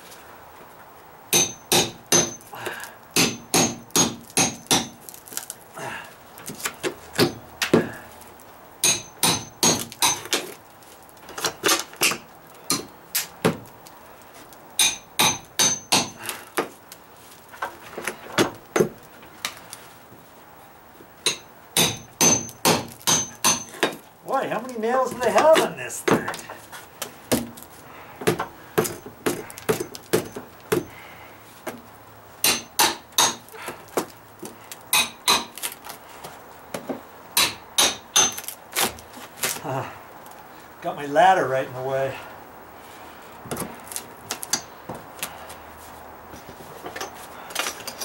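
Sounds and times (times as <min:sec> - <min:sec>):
hammer striking steel bar: 0:01.3 - 0:02.4, 0:03.2 - 0:05.0, 0:08.8 - 0:10.3, 0:14.8 - 0:16.2, 0:21.3 - 0:24.0, 0:32.4 - 0:33.4, 0:35.0 - 0:35.5.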